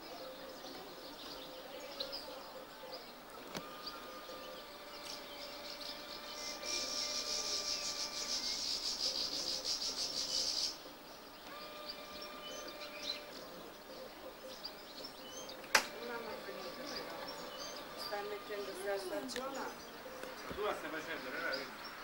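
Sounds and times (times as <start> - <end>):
bird chirps: 0.0 - 22.0
insect pulsing buzz: 3.5 - 10.8.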